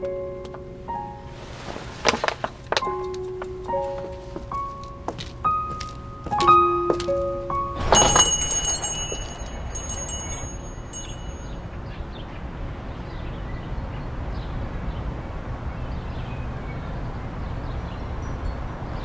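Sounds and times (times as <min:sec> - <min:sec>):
shop door chime bells: 0:05.7 - 0:11.8, 0:17.7 - 0:19.0.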